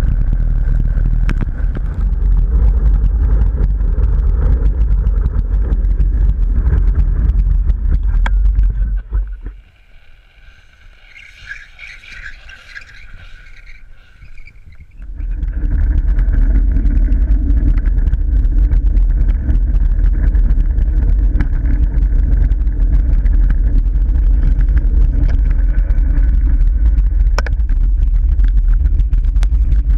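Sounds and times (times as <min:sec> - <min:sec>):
hard wheels rolling on asphalt: 0:00.0 - 0:29.9
wind buffeting microphone: 0:00.0 - 0:29.9.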